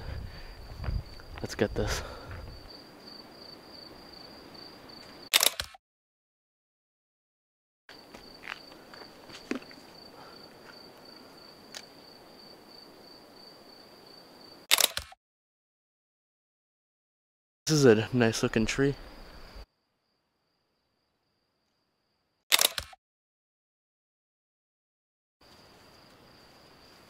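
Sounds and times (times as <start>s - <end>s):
cricket trilling: 0.2s - 5.4s, 7.9s - 14.7s, 25.4s - 27.0s
camera shutter clicks: 5.3s - 5.8s, 14.7s - 15.2s, 22.5s - 23.0s.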